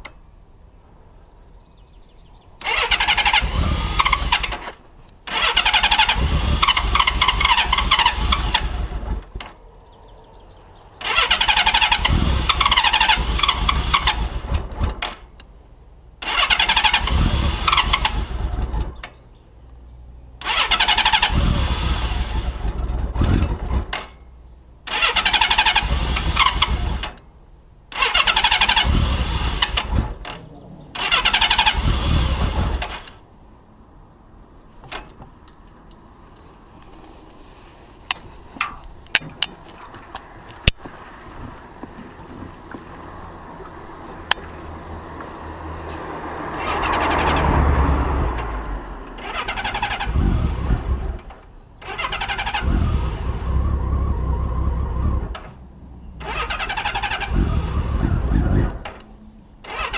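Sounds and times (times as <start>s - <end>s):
motorcycle engine cranking on starter: 2.6s - 9.6s, 11.0s - 15.5s, 16.2s - 19.2s, 20.4s - 27.3s, 27.9s - 33.2s, 46.5s - 59.9s.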